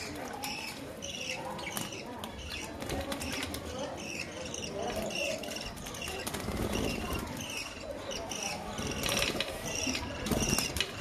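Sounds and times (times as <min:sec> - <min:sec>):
budgerigars chirping: 0:00.4 - 0:11.0
bird wing flapping: 0:06.1 - 0:07.4.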